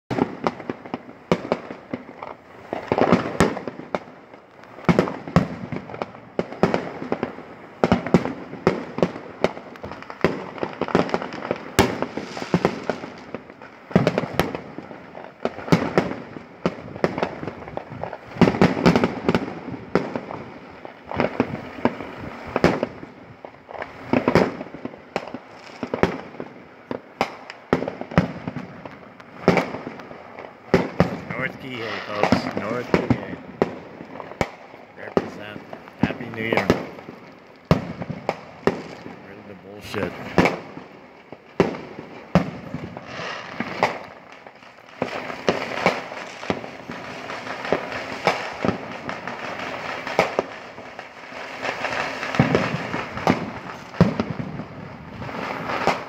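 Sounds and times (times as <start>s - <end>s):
fireworks bangs and crackling: 0.1s - 56.0s.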